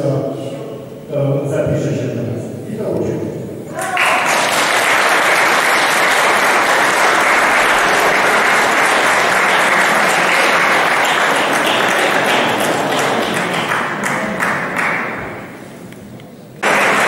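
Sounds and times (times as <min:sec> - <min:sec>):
audience applauding: 0:03.7 - 0:15.6, 0:16.6 - 0:17.0.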